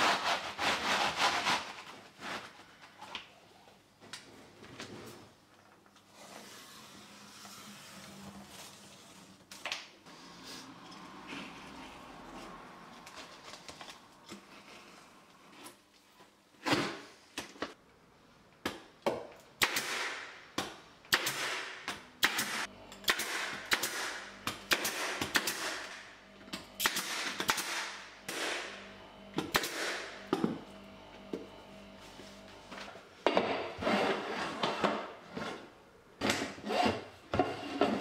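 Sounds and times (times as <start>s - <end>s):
pneumatic staple gun firing: 19.6s - 20.3s, 21.1s - 26.0s, 26.8s - 28.8s, 29.4s - 30.2s.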